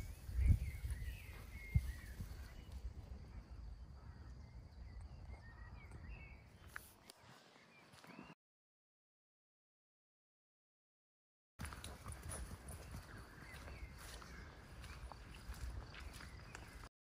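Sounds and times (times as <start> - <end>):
small birds chirping: 0.0 - 8.4, 11.6 - 16.9
footsteps thumping outdoors: 11.6 - 16.9.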